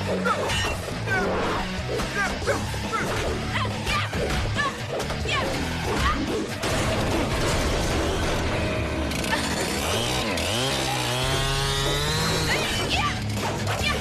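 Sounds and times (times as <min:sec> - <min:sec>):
buzzing saw-like mechanical whir: 0:00.0 - 0:06.6, 0:07.3 - 0:14.0
fight sound effects: 0:00.0 - 0:08.4
dramatic background music: 0:00.0 - 0:14.0.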